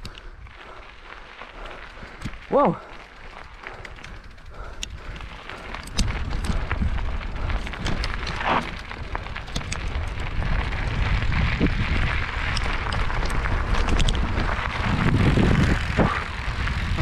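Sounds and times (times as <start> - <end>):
bike tyres crunching on gravel: 0.0 - 17.0
wind buffeting microphone: 0.0 - 17.0
sharp clicks and rattles: 1.5 - 17.0.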